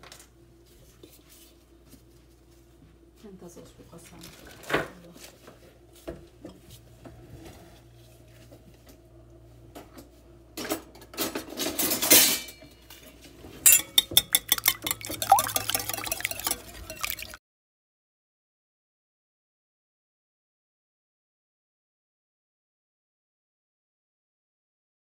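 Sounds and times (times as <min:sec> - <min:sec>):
whisk clicking against glass bowl: 0:13.7 - 0:17.4.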